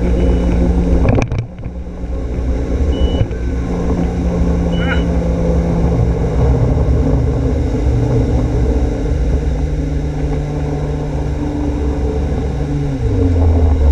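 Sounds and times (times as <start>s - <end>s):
boat engine running: 0.0s - 13.9s
water rushing past hull: 0.6s - 13.9s.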